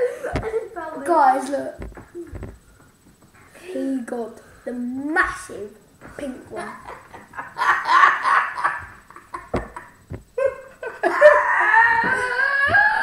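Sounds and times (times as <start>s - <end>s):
boys laughing: 0.0s - 0.8s, 6.4s - 13.0s.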